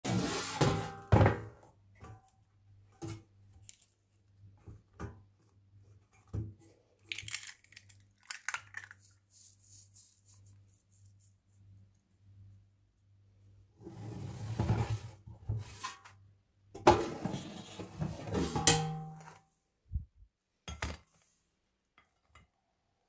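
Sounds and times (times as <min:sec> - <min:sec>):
crackly tearing and rustling: 0:03.6 - 0:04.2, 0:07.0 - 0:09.3.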